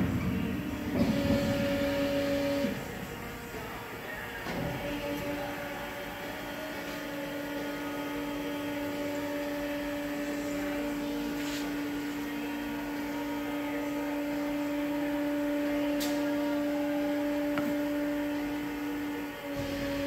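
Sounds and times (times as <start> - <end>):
machine drive humming: 0.0 - 20.0.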